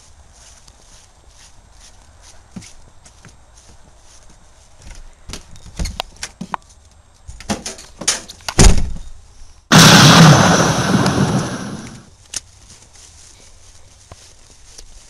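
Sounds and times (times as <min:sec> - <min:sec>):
heavy door thump: 0:08.6 - 0:09.0
sudden loud burst of noise: 0:09.7 - 0:12.1.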